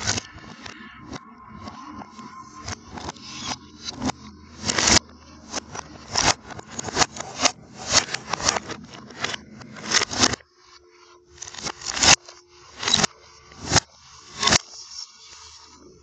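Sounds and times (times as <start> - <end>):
scraping and rustling: 2.6 - 10.4.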